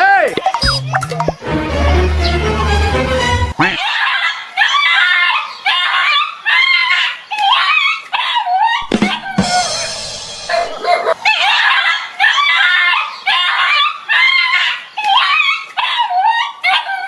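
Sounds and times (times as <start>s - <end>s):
dog barking and yelping: 10.5s - 17.0s.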